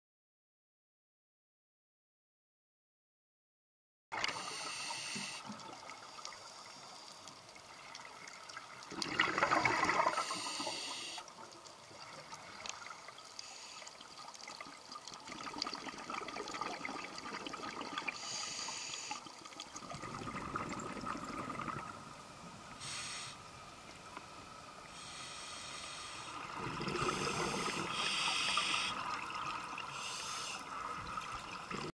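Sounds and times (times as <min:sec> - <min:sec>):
faint steady tone: 0:04.2 - 0:31.9
regulator inhalation hiss: 0:04.3 - 0:05.5, 0:10.0 - 0:11.3, 0:13.4 - 0:14.1, 0:18.2 - 0:19.3, 0:22.7 - 0:23.7, 0:24.9 - 0:29.2, 0:29.9 - 0:30.8
rush of exhaled bubbles: 0:08.9 - 0:10.6, 0:15.2 - 0:18.2, 0:19.8 - 0:22.0, 0:26.4 - 0:30.0, 0:30.7 - 0:31.9.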